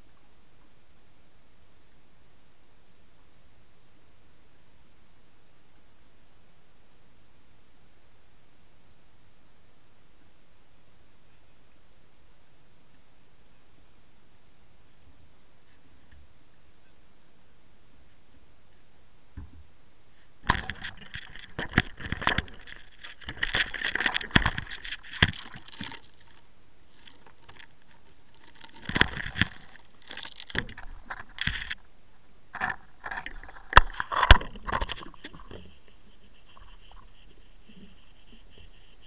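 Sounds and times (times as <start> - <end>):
knocks scrapes and rattles: 20.4 - 31.8, 32.5 - 39.0.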